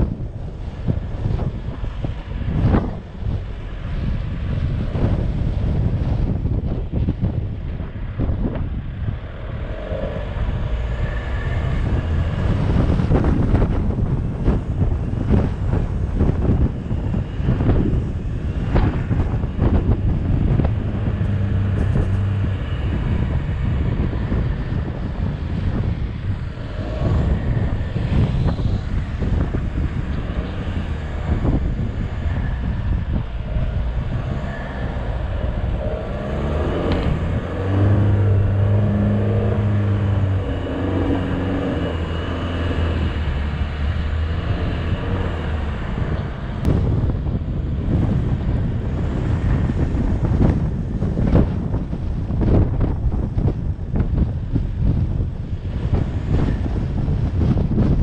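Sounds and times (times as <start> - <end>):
suv engine under load: 18.6 - 46.9.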